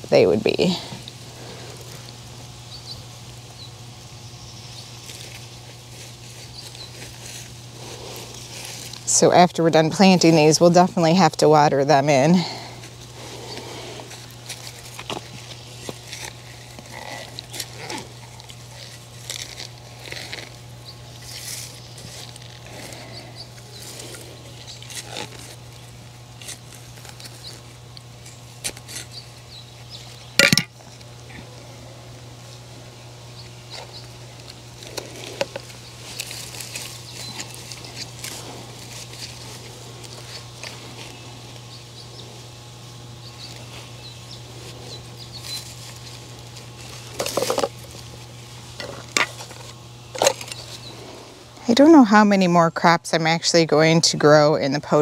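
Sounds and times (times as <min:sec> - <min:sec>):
steady low hum: 0:00.0 - 0:55.0
trowel scraping dry soil: 0:13.2 - 0:27.6.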